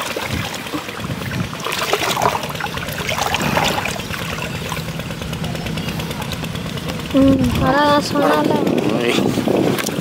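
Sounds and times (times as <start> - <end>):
shallow water splashing: 0.0 - 10.0.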